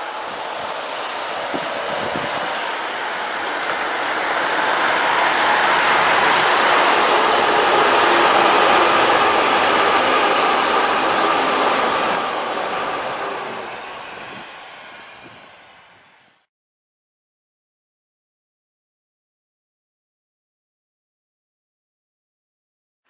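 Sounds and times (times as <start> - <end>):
diesel passenger train passing: 0.0 - 16.5.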